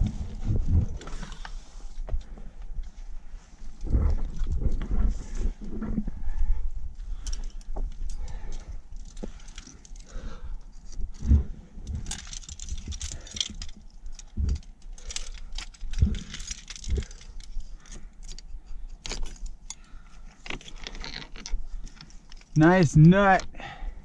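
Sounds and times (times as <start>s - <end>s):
carabiners jangling and clinking: 7.2s - 10.1s, 11.8s - 22.6s.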